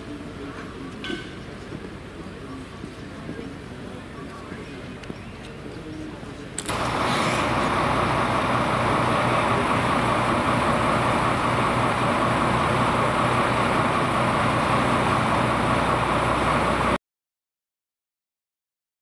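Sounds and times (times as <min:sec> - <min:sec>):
large diesel engine idling: 0:06.6 - 0:17.0
low hum: 0:06.6 - 0:17.0.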